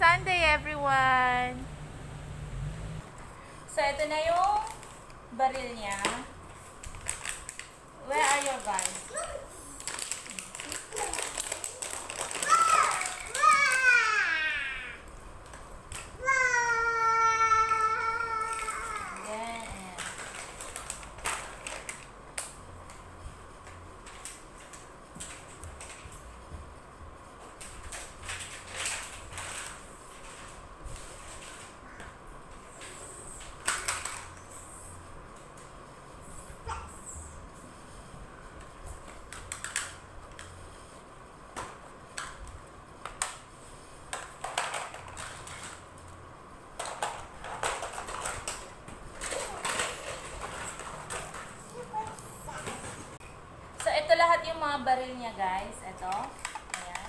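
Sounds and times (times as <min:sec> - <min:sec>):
plastic toys clattering on tiles: 0:04.1 - 0:14.1, 0:18.4 - 0:23.0, 0:23.6 - 0:26.2, 0:27.4 - 0:34.4, 0:39.0 - 0:40.6, 0:44.1 - 0:53.2, 0:56.0 - 0:57.0.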